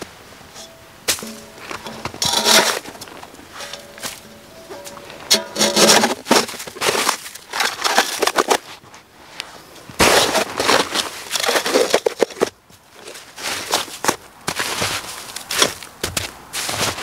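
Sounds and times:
metal pot scraping through snow: 0.5s - 8.7s.

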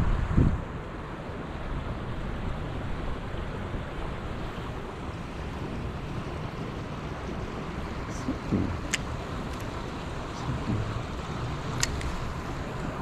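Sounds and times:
river water rushing: 0.0s - 13.0s
wind on microphone: 0.0s - 13.0s.

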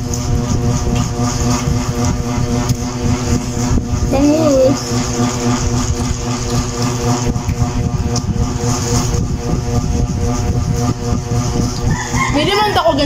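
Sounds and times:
mechanical drone: 0.0s - 13.0s.

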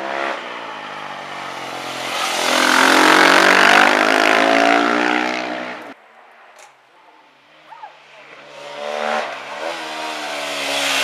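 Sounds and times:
motorcycle engine passing by: 1.4s - 5.8s.

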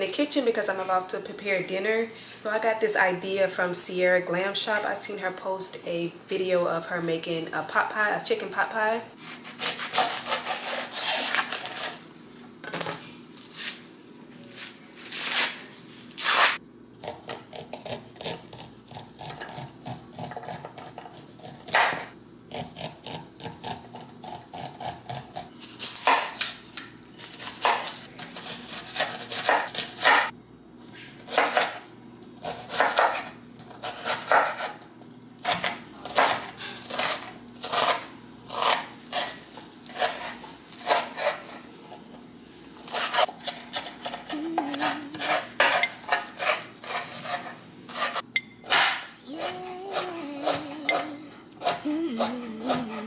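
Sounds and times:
knife chopping on wooden board: 17.0s - 25.2s, 31.2s - 31.8s, 32.4s - 34.8s, 35.4s - 41.5s.

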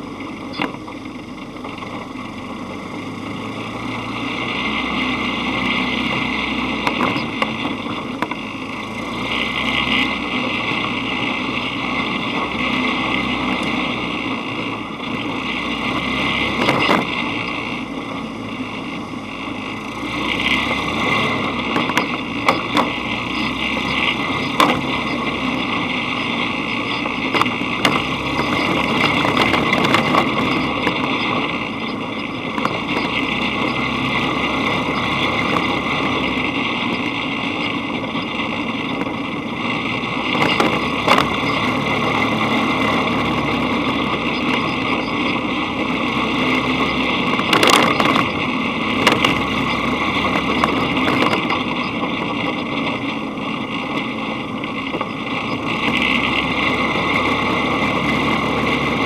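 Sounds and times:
dune buggy engine running: 0.0s - 59.0s.

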